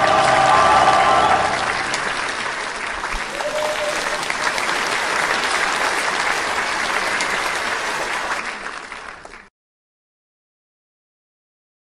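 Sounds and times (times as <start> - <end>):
audience applauding: 0.0 - 9.5.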